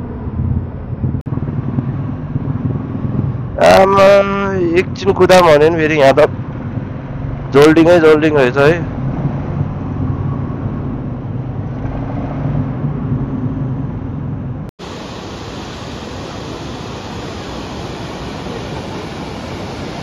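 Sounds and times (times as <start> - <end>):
motorcycle engine running: 0.0 - 4.9
waterfall rushing: 14.8 - 20.0.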